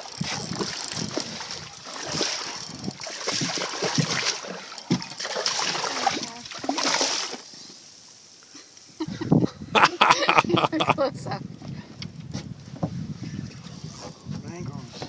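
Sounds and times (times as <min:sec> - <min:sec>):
fish splashing in water: 0:00.0 - 0:07.5.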